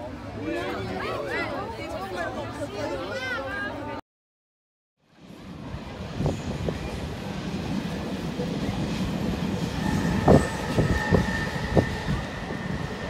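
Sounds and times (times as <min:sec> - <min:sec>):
train rumbling: 0:05.1 - 0:13.0
high steady squeal: 0:08.6 - 0:13.0.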